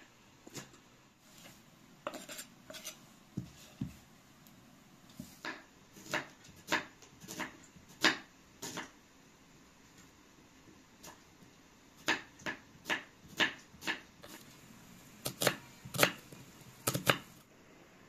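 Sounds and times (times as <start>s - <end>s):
knife chopping on wooden board: 5.2s - 8.9s, 15.2s - 17.3s.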